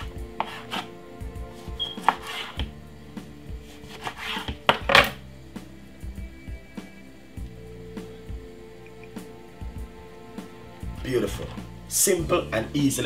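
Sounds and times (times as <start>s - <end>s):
knife cutting on wooden board: 0.0s - 0.9s, 1.5s - 2.7s, 3.6s - 5.2s
background music: 0.0s - 13.0s.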